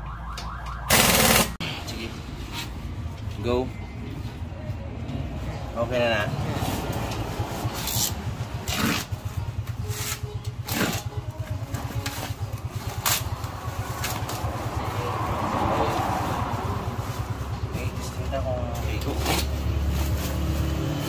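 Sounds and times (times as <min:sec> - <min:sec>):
knife cutting packing tape: 0:07.7 - 0:09.1, 0:09.8 - 0:11.2.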